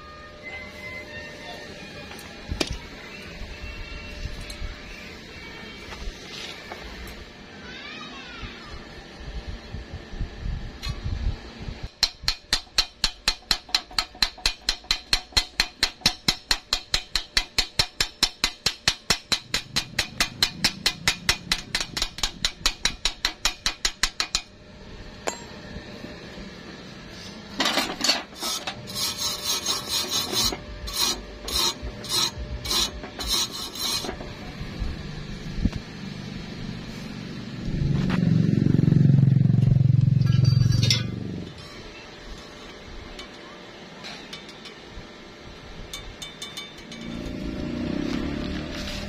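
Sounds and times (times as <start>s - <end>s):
wire brush scrubbing steel: 27.2s - 34.2s.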